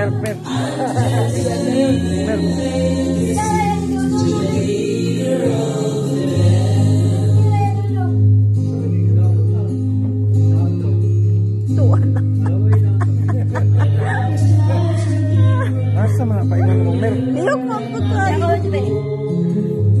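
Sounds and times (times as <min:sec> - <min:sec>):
person singing: 0:00.0 - 0:08.3, 0:11.7 - 0:20.0
guitar and bass music: 0:00.0 - 0:20.0.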